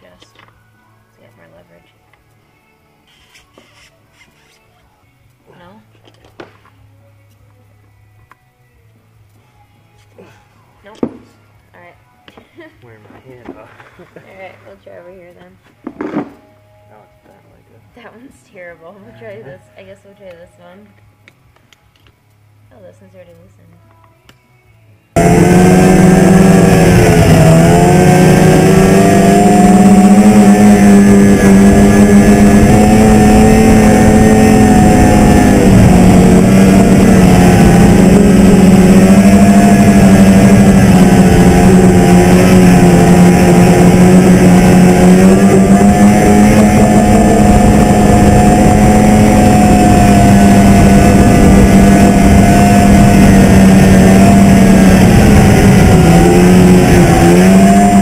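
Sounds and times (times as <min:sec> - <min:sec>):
snowmobile engine running: 0:25.2 - 0:58.0.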